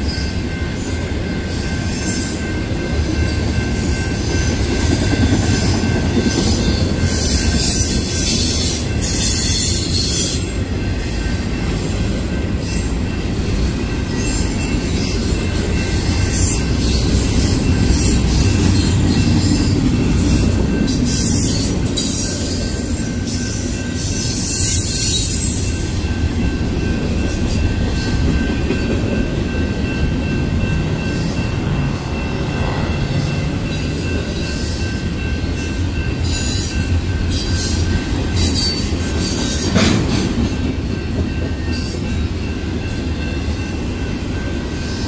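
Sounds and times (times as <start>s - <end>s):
train wheels rumbling on rail: 0.0s - 45.0s
high-pitched wheel squeal: 7.0s - 10.5s, 24.0s - 25.7s.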